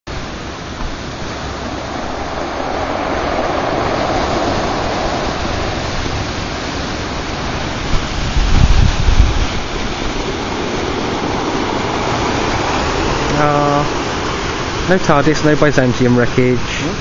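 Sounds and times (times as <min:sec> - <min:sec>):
sea waves breaking: 0:00.1 - 0:17.0
wind buffeting microphone: 0:00.1 - 0:17.0.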